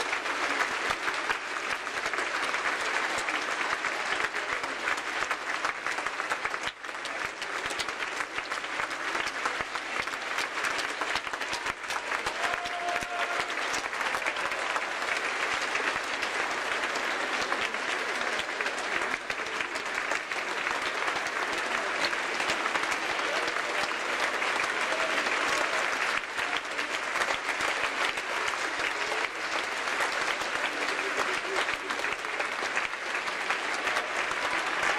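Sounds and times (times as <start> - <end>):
crowd applauding: 0.0 - 34.9.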